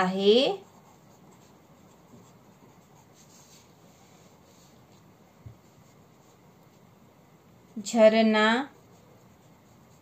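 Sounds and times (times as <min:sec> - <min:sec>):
pen scratching on paper: 0:00.0 - 0:03.8, 0:08.7 - 0:10.0.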